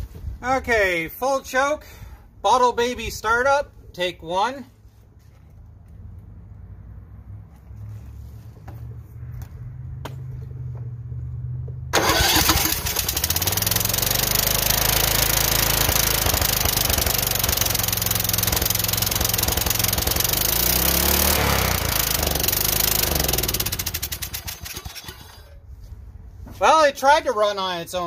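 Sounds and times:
engine running and surging: 0:11.9 - 0:25.4
engine cranking: 0:11.9 - 0:25.6.

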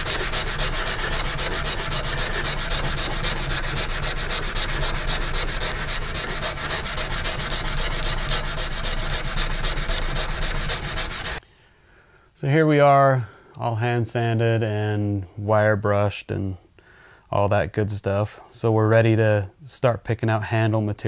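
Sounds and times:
sandpaper rubbing on steel blade: 0:00.0 - 0:11.4.

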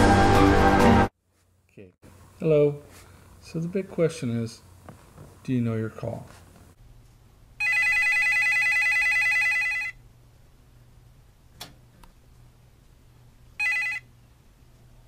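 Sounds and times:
telephone ringing trill: 0:07.6 - 0:10.0, 0:13.6 - 0:14.1.

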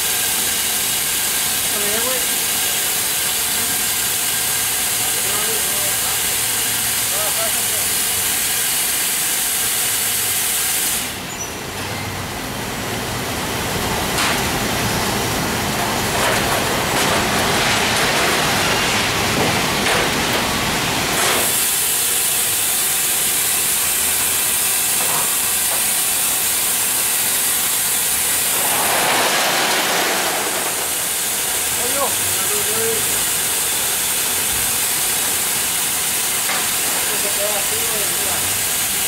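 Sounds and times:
factory conveyor machinery: 0:00.0 - 0:39.0
continuous high hiss: 0:17.4 - 0:39.0.

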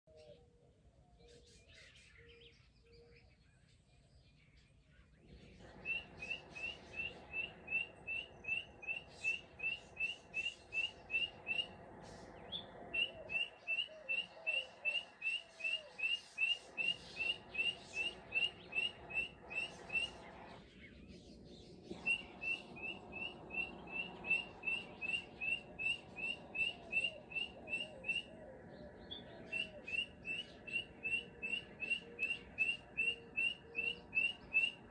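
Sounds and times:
bird short rising chirps: 0:21.9 - 0:28.4.

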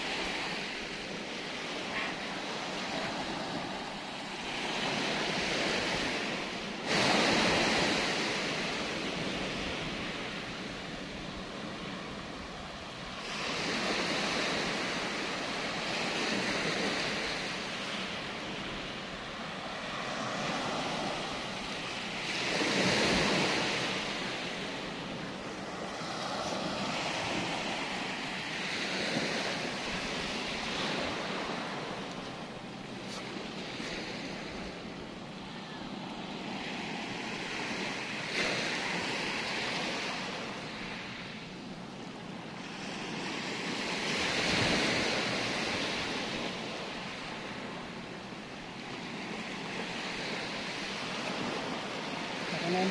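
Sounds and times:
surf breaking on beach: 0:00.0 - 0:12.6.

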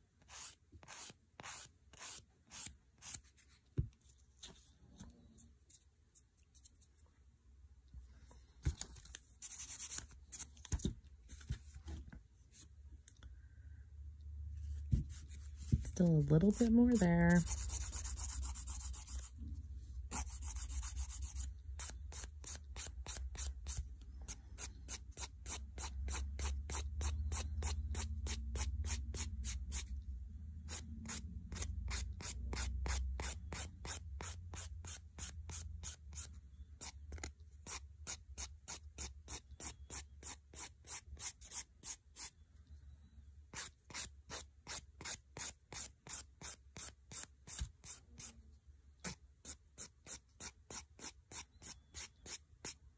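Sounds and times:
nail file rasping on fingernail: 0:17.4 - 0:19.3.

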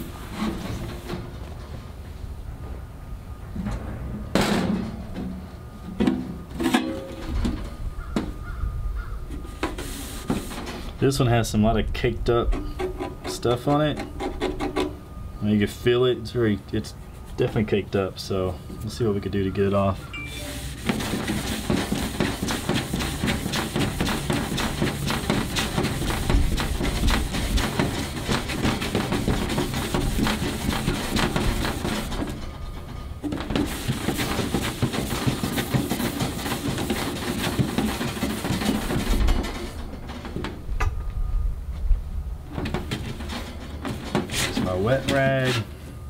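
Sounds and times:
abrasive pad scrubbing steel: 0:09.4 - 0:15.0, 0:19.3 - 0:39.8, 0:42.7 - 0:45.8.

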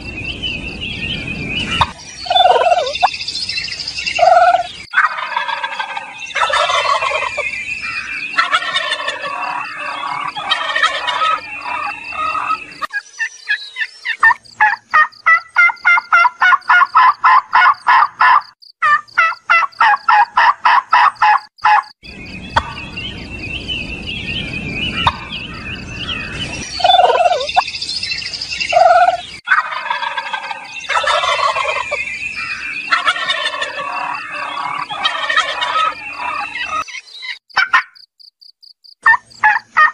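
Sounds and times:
turkeys gobbling and chirping: 0:01.6 - 0:03.2, 0:04.1 - 0:23.1, 0:24.8 - 0:27.7, 0:28.5 - 0:38.0, 0:39.0 - 0:39.9
rapid pulsed turkey calls: 0:01.8 - 0:03.1, 0:04.2 - 0:07.5, 0:08.3 - 0:21.9, 0:22.6 - 0:22.8, 0:25.0 - 0:25.3, 0:26.8 - 0:27.6, 0:28.7 - 0:39.9.

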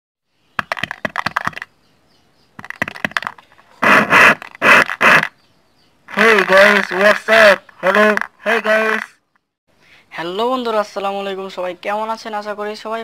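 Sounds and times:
sharp clicks and scratches: 0:00.6 - 0:01.7, 0:02.6 - 0:05.4, 0:06.1 - 0:09.1.

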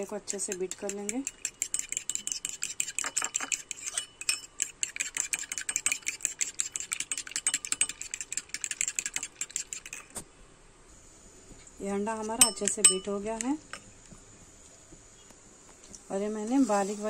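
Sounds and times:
fork whisking egg in bowl: 0:00.0 - 0:10.2, 0:12.1 - 0:13.5.

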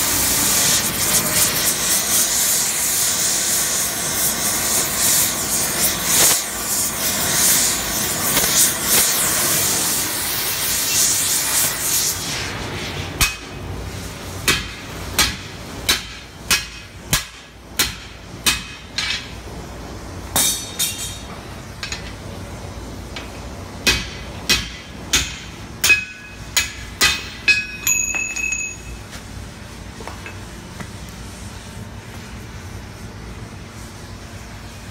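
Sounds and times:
hammer striking metal punch: 0:13.2 - 0:13.6, 0:14.4 - 0:19.3, 0:20.3 - 0:22.1, 0:23.8 - 0:29.0.

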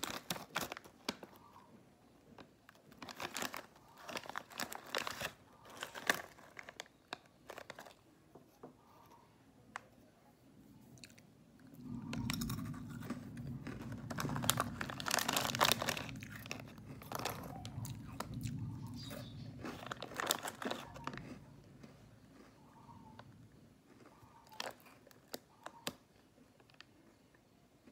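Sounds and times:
plastic wrapper crinkling: 0:00.0 - 0:01.5, 0:02.3 - 0:08.1, 0:11.8 - 0:23.3, 0:23.9 - 0:26.0
crunching and chewing crackers: 0:00.0 - 0:08.3, 0:10.8 - 0:27.9.

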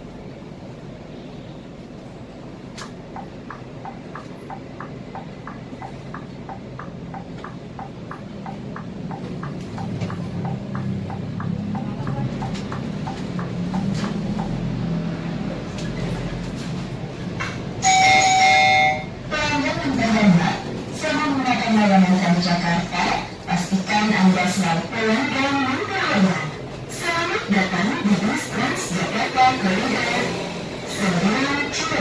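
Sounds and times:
bus engine: 0:00.0 - 0:32.0
turn signal ticking: 0:03.1 - 0:14.7
announcement chime: 0:17.8 - 0:19.2.

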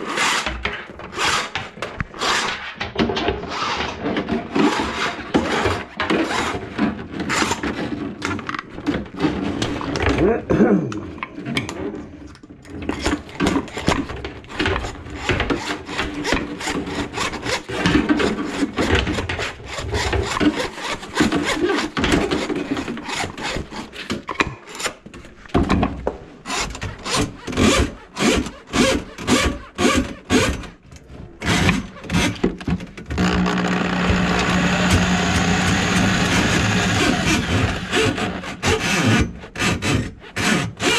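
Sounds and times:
motor humming: 0:33.2 - 0:37.9.

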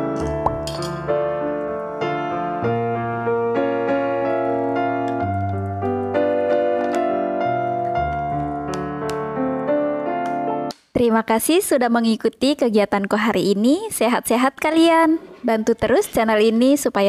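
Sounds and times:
piano music: 0:00.0 - 0:10.8.

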